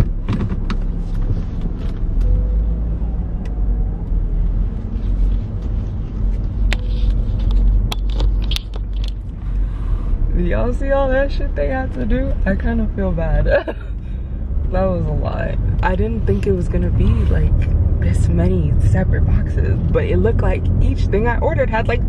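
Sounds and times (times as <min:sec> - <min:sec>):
sharp clicks and knocks: 0:00.0 - 0:01.0, 0:06.6 - 0:09.4
car engine low rumble: 0:00.0 - 0:22.0.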